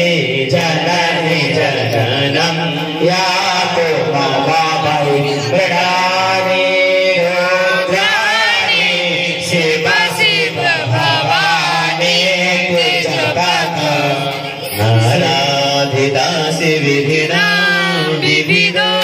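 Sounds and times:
devotional chanting: 0.0 - 19.0.

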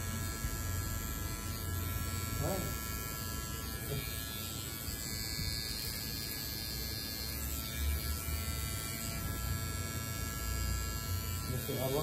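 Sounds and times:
electric hair trimmer buzzing: 0.0 - 12.0.

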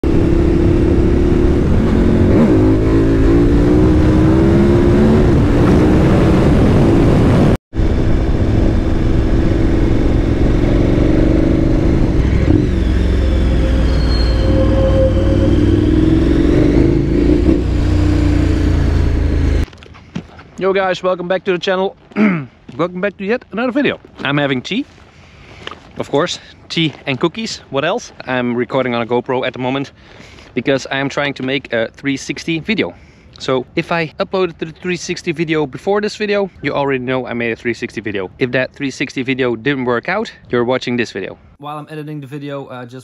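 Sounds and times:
wind noise: 0.0 - 19.6
motorcycle engine running: 7.8 - 14.0.

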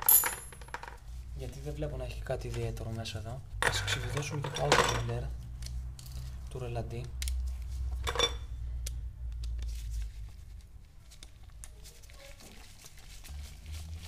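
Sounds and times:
metallic clink: 0.0 - 0.8.

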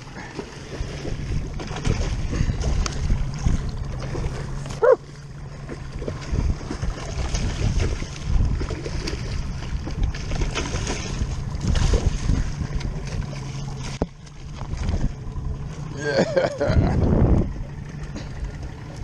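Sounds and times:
fish splashing in water: 0.0 - 15.2
outboard motor idling: 0.0 - 19.0
wind buffeting microphone: 0.7 - 4.8, 5.6 - 15.7, 16.6 - 19.0.

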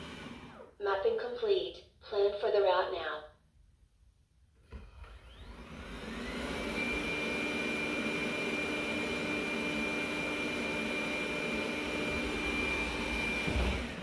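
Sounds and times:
robot vacuum fan whining: 0.0 - 0.8, 4.7 - 14.0.

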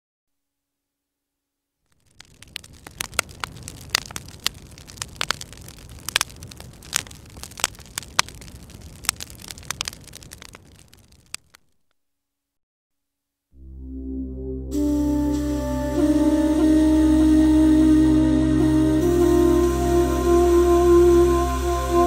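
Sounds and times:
fire crackling: 1.9 - 11.9, 14.8 - 22.0.

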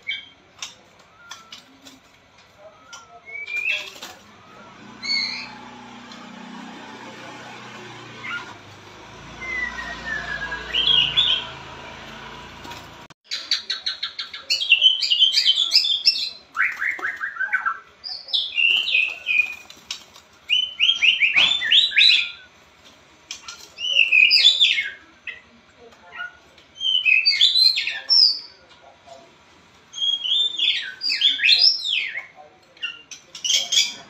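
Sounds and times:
bird singing: 0.0 - 2.0, 2.6 - 6.3, 9.3 - 11.7, 13.3 - 22.5, 23.3 - 28.7, 29.9 - 34.0.

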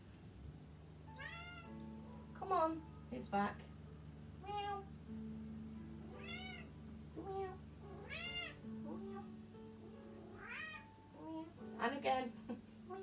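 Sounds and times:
cat meowing: 1.1 - 1.7, 4.4 - 4.9, 6.1 - 9.3, 10.2 - 11.5.

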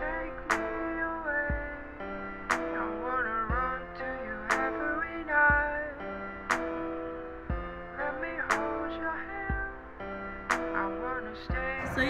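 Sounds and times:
low kick drum: 1.5 - 1.7.

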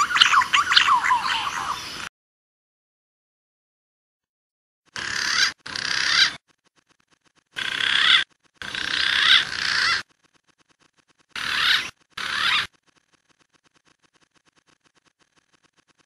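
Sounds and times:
pigeon warbling whistled calls: 0.0 - 2.0, 5.0 - 6.4, 7.6 - 10.0, 11.4 - 12.7.

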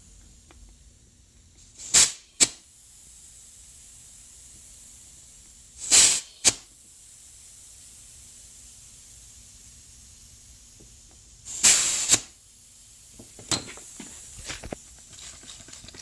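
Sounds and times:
air leak hissing: 0.0 - 16.0
short loud spray: 1.7 - 2.6, 5.8 - 6.7, 11.5 - 12.4.

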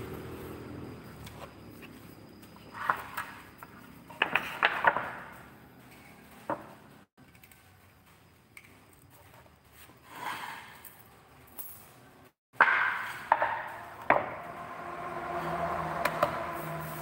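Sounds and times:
wooden knocks: 12.6 - 14.4.

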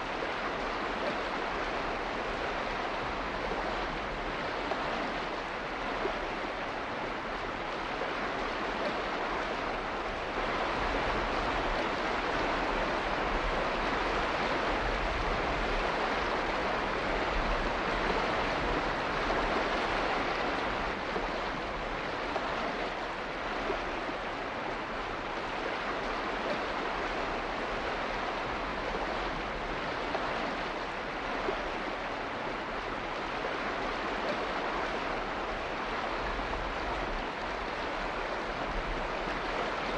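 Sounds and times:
water rushing: 0.0 - 39.9.

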